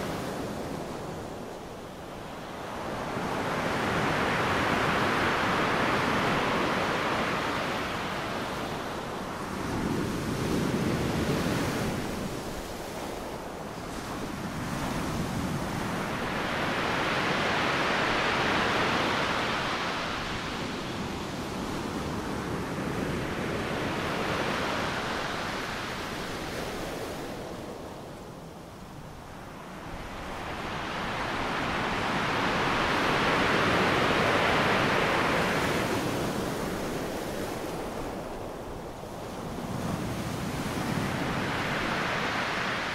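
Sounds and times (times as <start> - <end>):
ocean waves washing in: 29.4 - 42.9.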